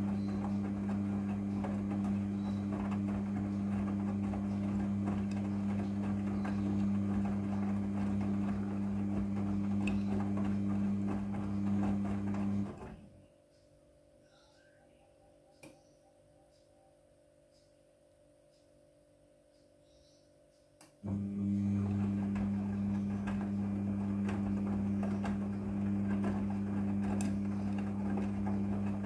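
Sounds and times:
washing machine drum turning: 0:00.0 - 0:13.0, 0:21.1 - 0:29.0.

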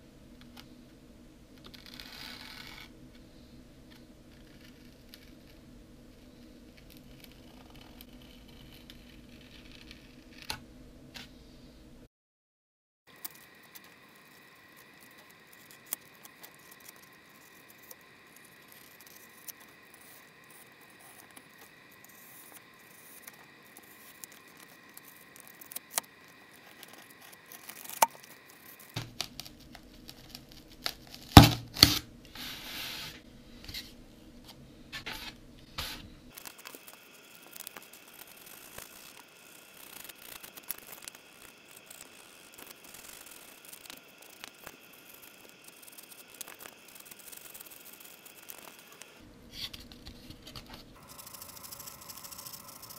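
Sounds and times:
knife cutting polystyrene foam: 0:26.7 - 0:33.2.

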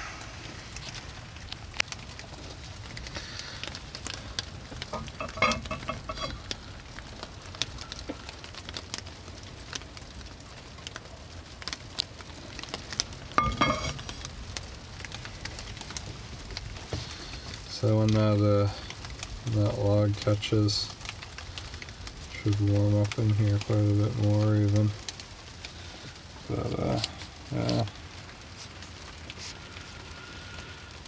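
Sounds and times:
rain pattering: 0:00.0 - 0:31.0
stove draft rumble: 0:00.0 - 0:31.0
wood fire crackling and popping: 0:00.0 - 0:31.0
ringing metal clanks: 0:13.4 - 0:14.0.

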